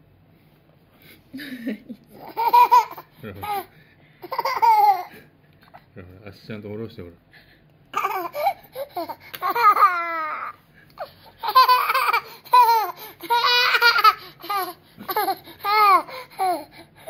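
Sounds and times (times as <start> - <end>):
toddler laughing: 2.1 - 5.2, 7.9 - 16.7.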